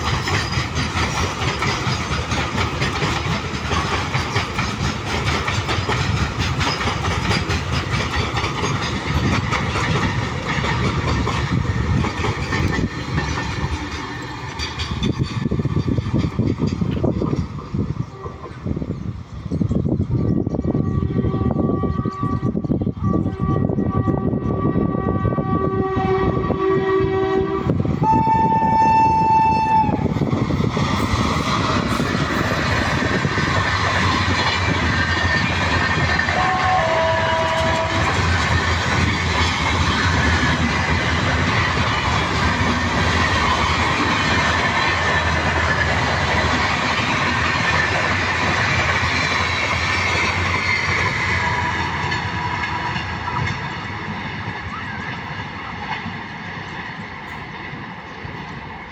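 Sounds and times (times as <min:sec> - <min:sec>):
train wheel and rail noise: 0:00.0 - 0:58.9
train horn blasts: 0:20.4 - 0:30.1, 0:36.2 - 0:38.3, 0:51.3 - 0:53.0.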